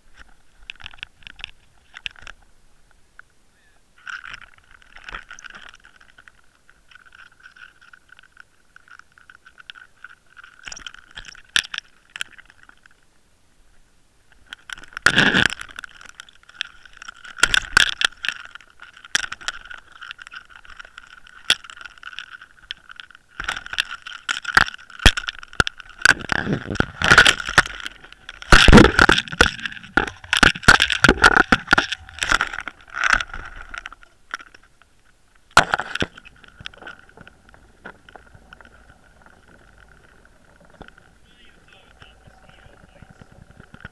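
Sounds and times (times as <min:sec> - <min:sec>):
camera housing knocking and rattling: 0:23.4 - 0:34.5
steady high whine: 0:27.0 - 0:43.9.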